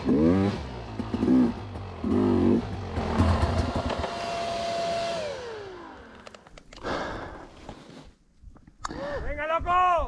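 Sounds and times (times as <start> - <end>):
motorcycle engine revving: 0.0 - 6.2.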